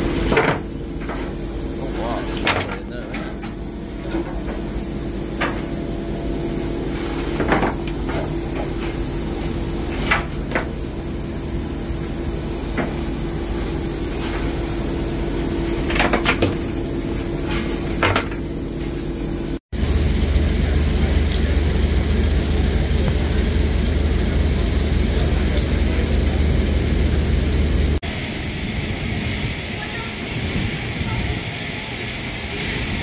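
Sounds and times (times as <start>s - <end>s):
steam escaping rumble and hiss: 0.0s - 33.0s
steam locomotive hum and hiss: 0.0s - 33.0s
metallic clanks and knocks: 6.9s - 10.8s.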